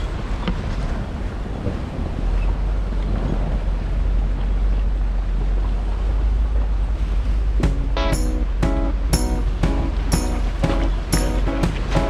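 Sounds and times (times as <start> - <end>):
engine and drivetrain rumble: 0.0 - 7.6.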